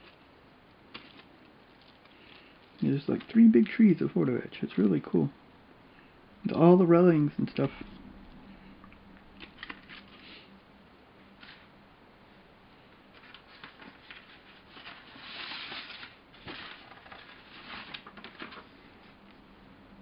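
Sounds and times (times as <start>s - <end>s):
plastic bags and paper rustling: 13.1s - 19.2s.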